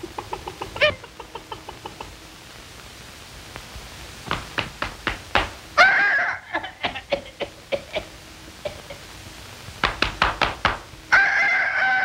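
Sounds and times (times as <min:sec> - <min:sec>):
long bird-like call: 0:05.6 - 0:09.3, 0:11.0 - 0:12.0.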